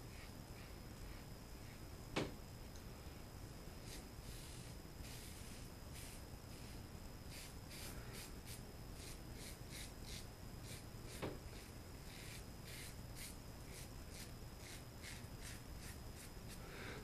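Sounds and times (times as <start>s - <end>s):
razor cutting stubble: 3.8s - 16.6s.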